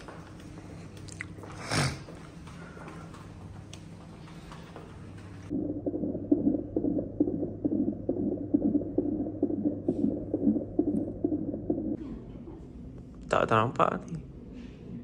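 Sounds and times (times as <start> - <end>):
fetal heartbeat doppler whooshing: 5.5 - 12.0.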